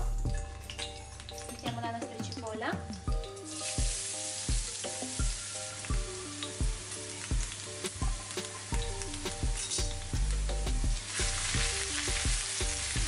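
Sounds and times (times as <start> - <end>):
background music with steady beat: 0.0 - 13.0
onion sizzling in hot oil: 3.1 - 13.0.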